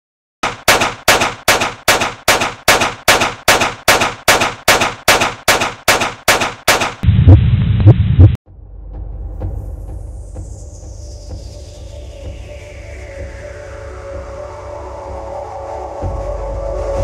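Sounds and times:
rapid sharp cracks: 0.4 - 7.0
loud low rumble: 7.0 - 10.3.

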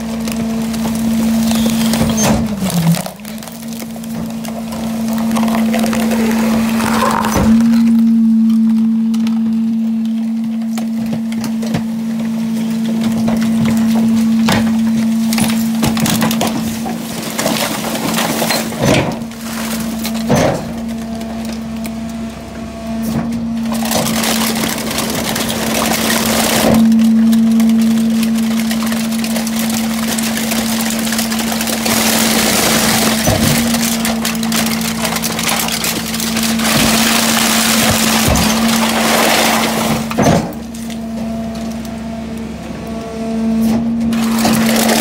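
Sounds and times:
hydraulic packer humming: 0.0 - 45.0
cans crunching and crackling: 2.6 - 8.3.

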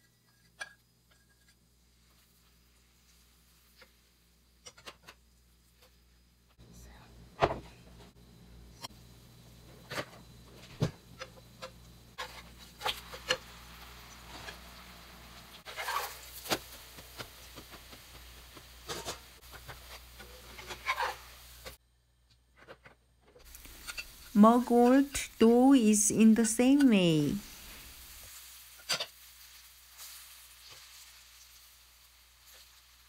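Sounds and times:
pancake frying in oil: 0.0 - 6.5, 10.3 - 21.8, 23.4 - 24.4, 27.4 - 33.0
metal turner scraping pan: 15.6 - 16.6, 18.8 - 21.8, 23.4 - 24.3.

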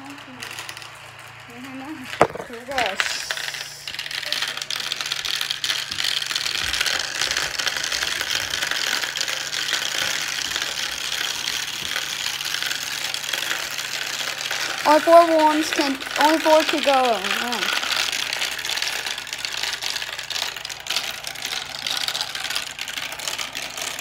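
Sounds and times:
marbles rattling down plastic tubes: 0.0 - 24.0.

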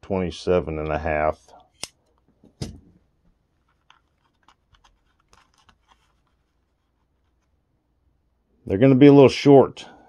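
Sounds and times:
light clicks and scratches: 3.5 - 7.6.

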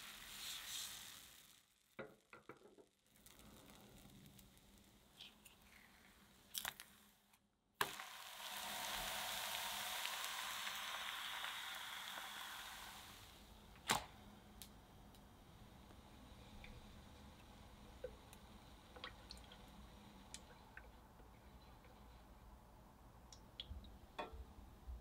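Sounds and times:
batter sizzling in a frying pan: 0.0 - 7.2, 7.8 - 13.7.

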